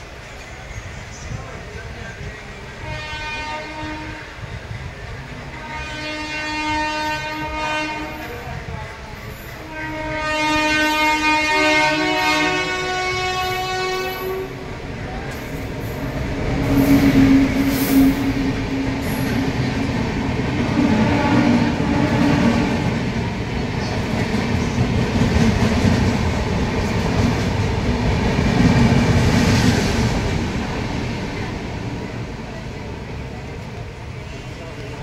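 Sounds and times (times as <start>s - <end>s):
train wheels rumbling on rail: 0.0s - 35.0s
train clicks and clatter: 15.2s - 30.4s.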